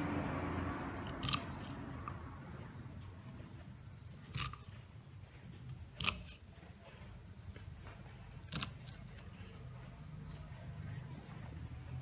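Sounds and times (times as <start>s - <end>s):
knife cutting beans on wooden board: 1.0s - 2.2s, 4.3s - 4.9s, 5.6s - 7.1s, 8.3s - 9.4s.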